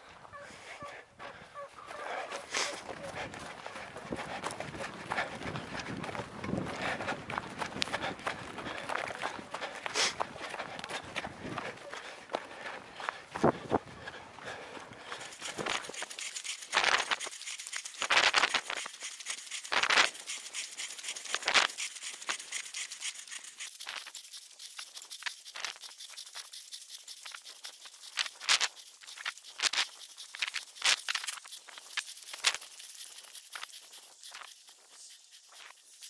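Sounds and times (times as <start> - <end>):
footsteps crunching on snow: 0.0 - 24.1.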